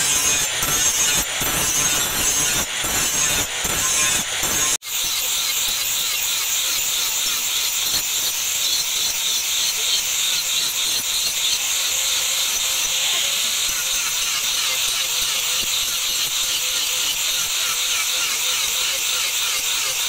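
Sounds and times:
angle grinder grinding steel: 0:00.0 - 0:20.0.

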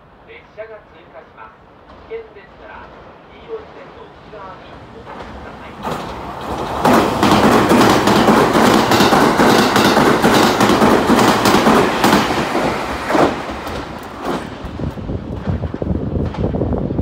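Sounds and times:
train passing at speed: 0:00.0 - 0:17.0
wheels clacking over rail joints: 0:04.7 - 0:16.6.

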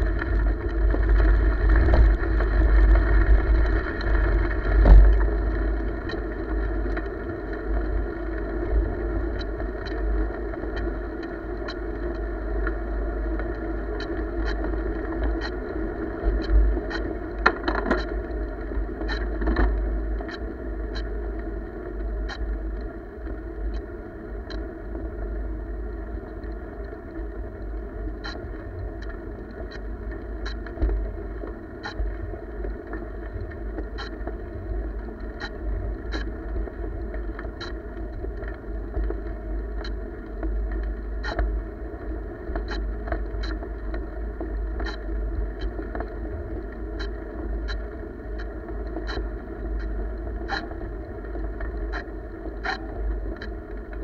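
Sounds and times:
wheels rolling on pavement: 0:00.0 - 0:23.5
faint steady hum: 0:00.0 - 0:54.0
wind rumble on microphone: 0:00.0 - 0:54.0
sharp ticks: 0:33.9 - 0:34.2, 0:35.4 - 0:36.3, 0:41.2 - 0:41.5, 0:42.6 - 0:42.8, 0:48.4 - 0:49.9, 0:50.5 - 0:50.8, 0:51.9 - 0:53.6.

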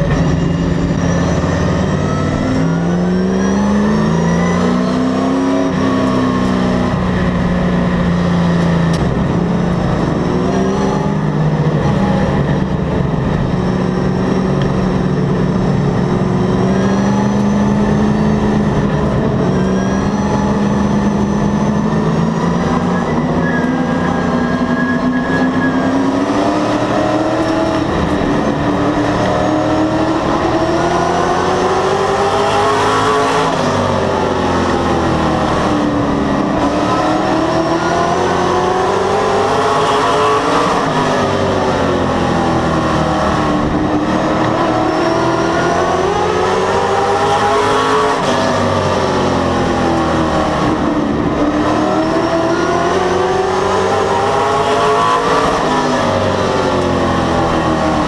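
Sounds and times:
race car engine from cockpit: 0:00.0 - 0:58.0.

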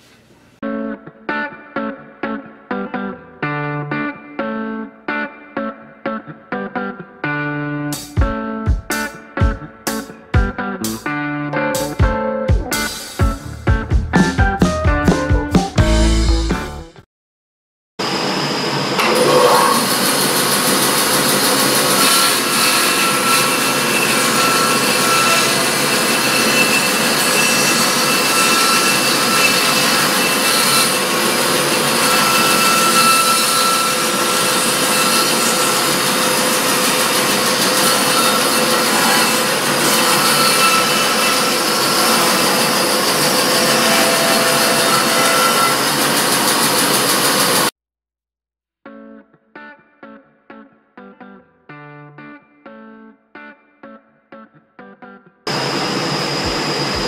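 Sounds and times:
band saw cutting wood: 0:19.0 - 0:47.7.

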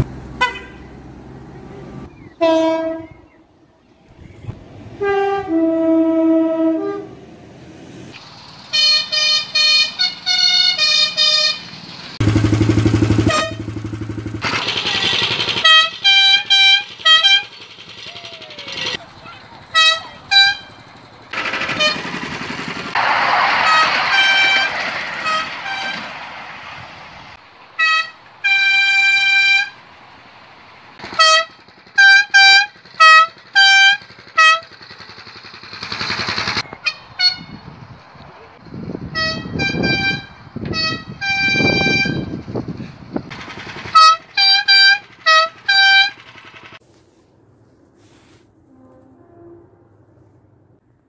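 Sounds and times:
two-note train horn toots: 0:05.0 - 0:07.2, 0:13.1 - 0:14.0, 0:48.6 - 0:49.8
rushing noise: 0:21.2 - 0:31.2.

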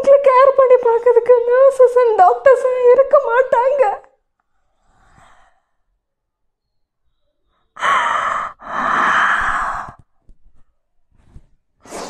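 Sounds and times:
woman gasping breath: 0:07.8 - 0:10.0
woman sighing breath: 0:07.8 - 0:10.0.

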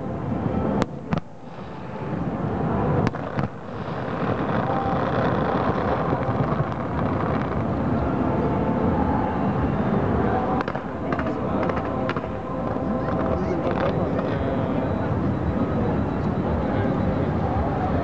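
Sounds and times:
rumble of firework bursts: 0:00.1 - 0:18.0
distant firework bangs: 0:03.0 - 0:07.7.

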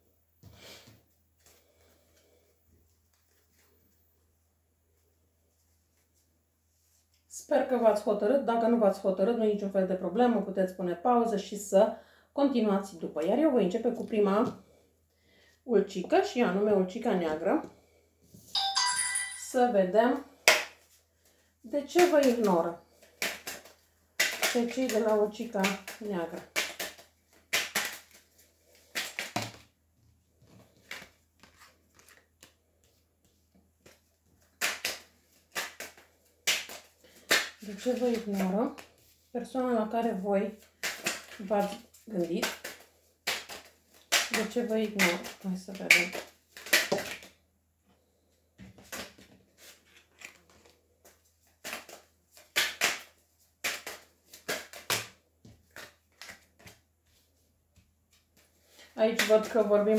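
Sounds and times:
cards snapping and slapping on table: 0:20.4 - 0:20.8, 0:22.0 - 0:25.0, 0:25.6 - 0:29.7, 0:30.8 - 0:32.6, 0:33.8 - 0:38.9, 0:40.6 - 0:47.4, 0:48.7 - 0:56.8.

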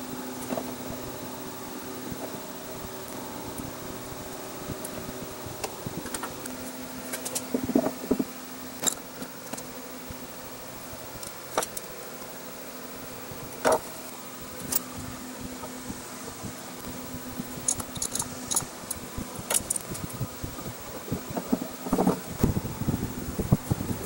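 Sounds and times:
steady low hum: 0:00.0 - 0:24.0
metallic clicks and knocks: 0:17.6 - 0:20.0.

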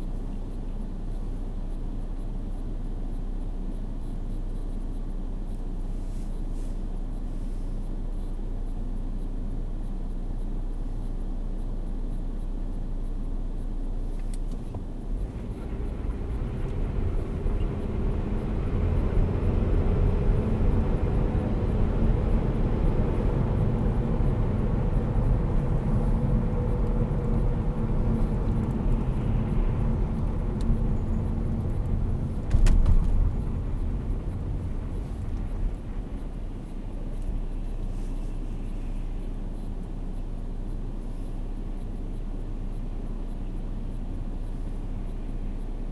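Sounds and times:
car engine from inside cabin: 0:00.0 - 0:45.9
tyre noise on wet road: 0:14.5 - 0:39.2
loud thump of car over bump: 0:32.3 - 0:35.4.

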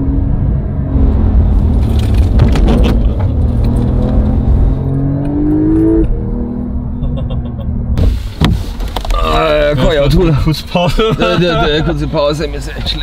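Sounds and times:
car engine revving: 0:00.0 - 0:08.4.

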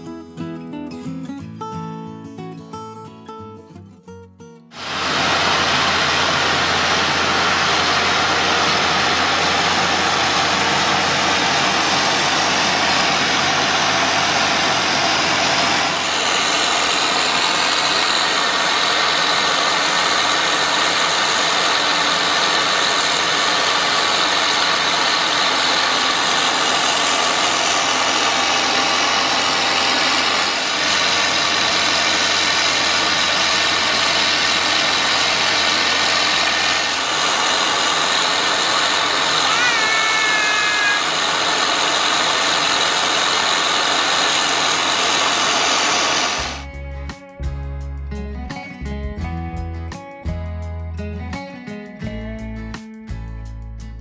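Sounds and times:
combine harvester running: 0:04.7 - 0:47.1.

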